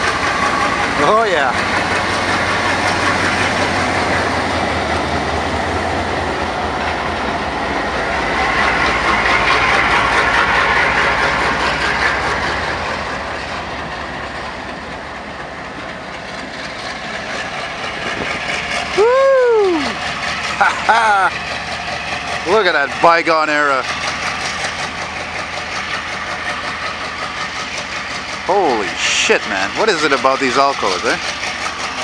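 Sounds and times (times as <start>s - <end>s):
diesel locomotive engine: 0.0s - 32.0s
wheels clicking over rails: 0.0s - 32.0s.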